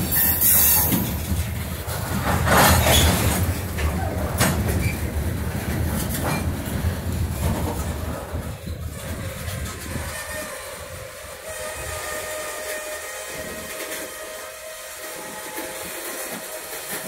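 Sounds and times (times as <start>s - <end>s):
train wheels rumbling on rail: 0.0s - 17.0s
metallic clanks and screeches: 0.1s - 1.5s, 2.1s - 5.2s.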